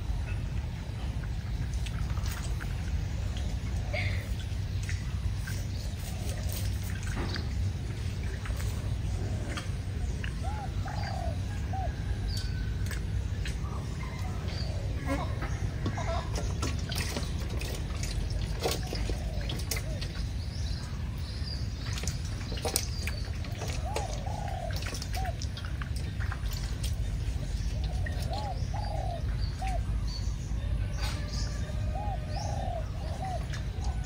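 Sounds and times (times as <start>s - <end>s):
dove cooing: 5.9s - 6.9s, 8.3s - 12.6s, 13.6s - 20.2s, 23.4s - 25.7s, 27.0s - 30.0s, 30.7s - 34.0s.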